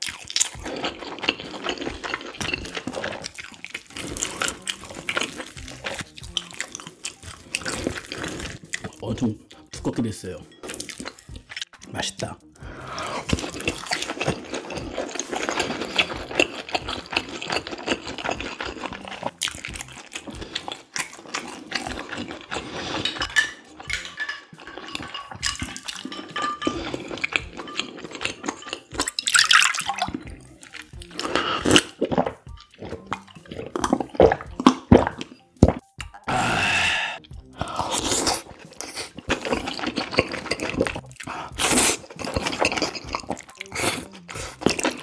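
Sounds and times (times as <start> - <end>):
slurping noodle soup: 0.0 - 9.0, 12.6 - 45.0
chewing: 0.0 - 9.7, 10.6 - 11.9, 12.7 - 45.0
swallowing from a cup: 36.2 - 39.2.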